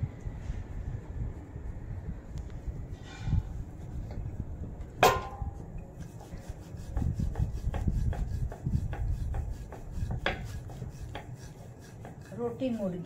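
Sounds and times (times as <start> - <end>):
rolling pin rubbing dough: 5.9 - 13.0.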